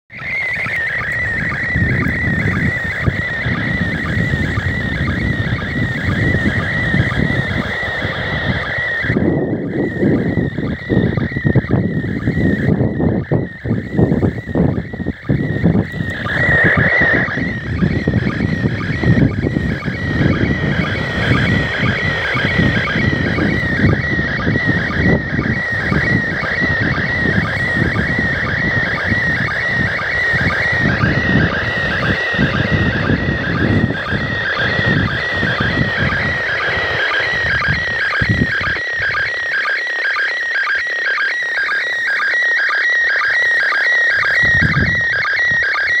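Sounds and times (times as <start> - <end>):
wind buffeting microphone: 0.1 - 39.3, 44.2 - 46.0
warbling electronic tone from radio: 0.1 - 46.0.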